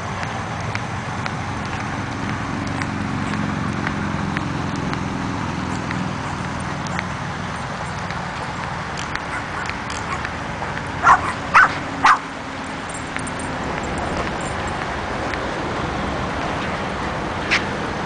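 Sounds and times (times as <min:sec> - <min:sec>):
small dog barking: 0:09.3 - 0:12.3.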